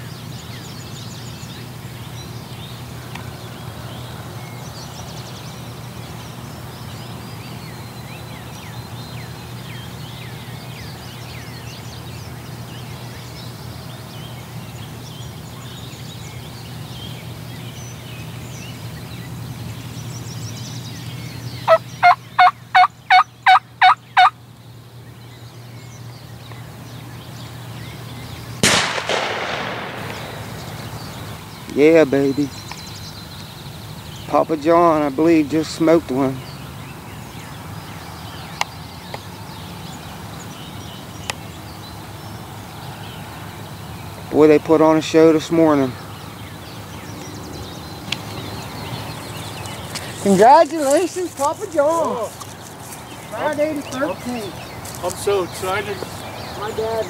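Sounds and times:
steady low hum: 0.0s - 42.7s
faint songbird chirps: 0.0s - 57.0s
turkey yelps: 21.7s - 24.3s
shotgun blast: 28.6s - 31.2s.

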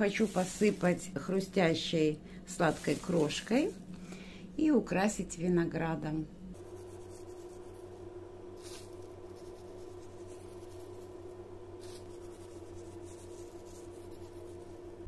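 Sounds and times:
soft rustles of crumb topping: 0.0s - 1.5s, 2.5s - 3.8s, 6.6s - 15.0s
low electrical hum: 0.0s - 15.0s.

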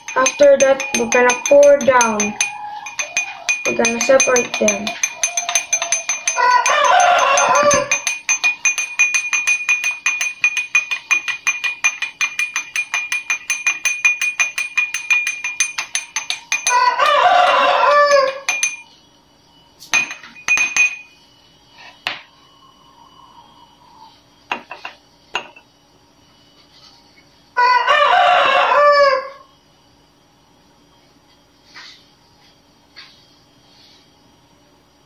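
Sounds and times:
spoon clinking against glass: 0.0s - 18.9s, 19.9s - 21.2s, 24.5s - 25.6s
rooster crowing: 0.8s - 3.7s, 4.9s - 8.3s, 16.6s - 18.7s, 27.6s - 29.5s.

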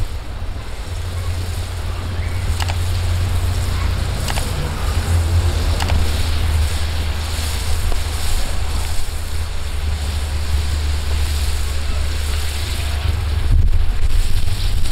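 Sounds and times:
wind rumbling on microphone: 0.0s - 14.9s
short sharp clicks: 2.6s - 2.9s, 4.2s - 4.6s, 5.8s - 6.0s.

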